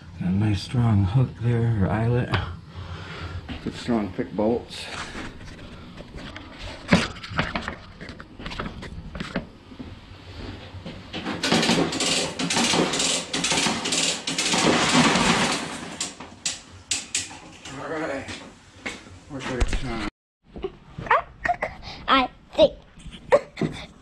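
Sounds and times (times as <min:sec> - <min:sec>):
ratchet clicks and clanks: 0:11.2 - 0:17.8.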